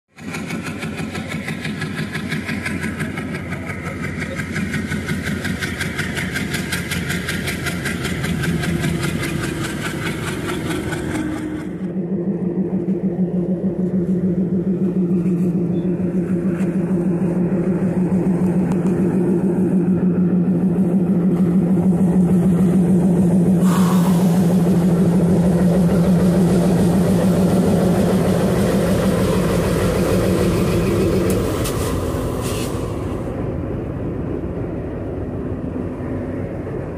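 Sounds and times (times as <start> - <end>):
diesel locomotive engine accelerating: 0.1 - 36.9
diesel locomotive passing: 0.1 - 36.9
train wheels rolling and clattering: 0.1 - 36.9
hiss: 23.6 - 25.0, 28.8 - 33.3.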